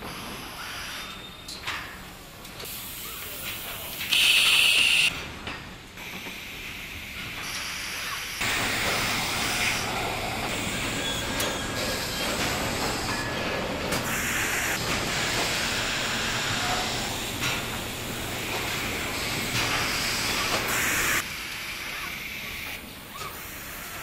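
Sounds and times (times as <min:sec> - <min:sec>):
machinery running: 0:08.4 - 0:21.2.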